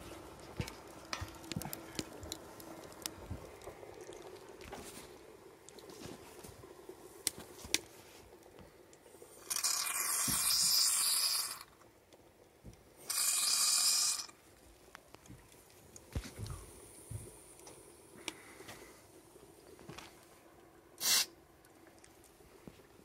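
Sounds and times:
faint crackling: 0.0 - 23.0
loud hissing steam bursts: 13.1 - 14.3, 21.0 - 21.4.

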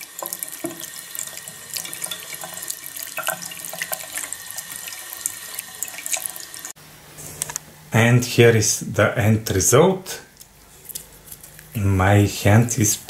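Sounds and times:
tap water splashing on plastic plate: 0.0 - 4.8.

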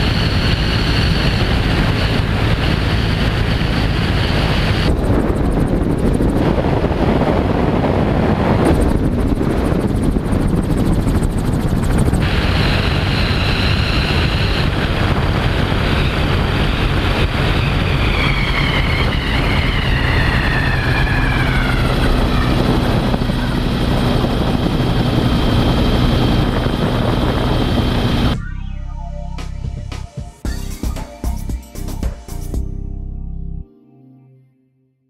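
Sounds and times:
aircraft engine and propeller: 0.0 - 28.4
wind rush: 0.0 - 28.4
high whine falling in pitch: 11.9 - 32.5.

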